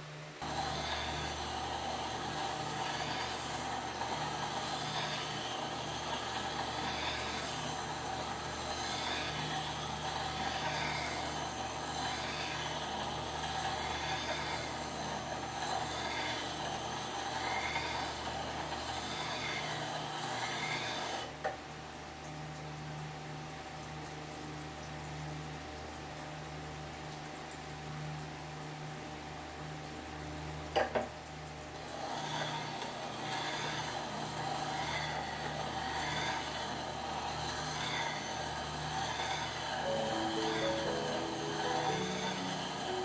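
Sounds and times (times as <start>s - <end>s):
blade grinding on whetstone: 0.4s - 21.3s, 31.9s - 43.0s
sharpener motor hum: 0.4s - 21.3s, 32.2s - 43.0s.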